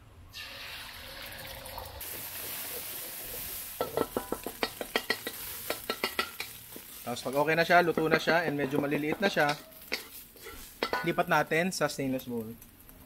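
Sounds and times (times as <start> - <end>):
egg sizzling in hot oil: 0.3 - 11.5
wooden spatula scraping wok: 2.1 - 11.3.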